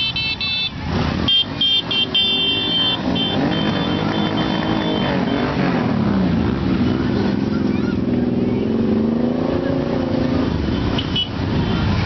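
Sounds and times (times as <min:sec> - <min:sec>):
horn beeping: 0:00.0 - 0:05.8
motorcycle engines passing: 0:00.0 - 0:12.0.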